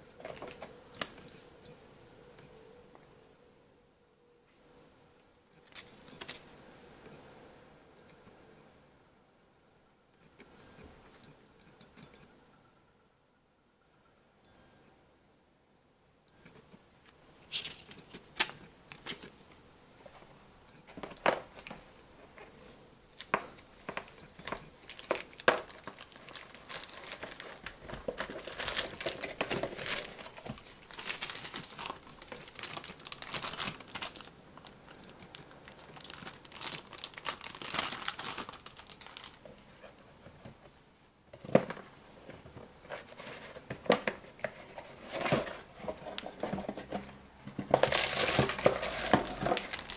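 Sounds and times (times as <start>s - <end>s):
plastic bag crinkling: 23.2s - 39.5s, 47.7s - 49.9s.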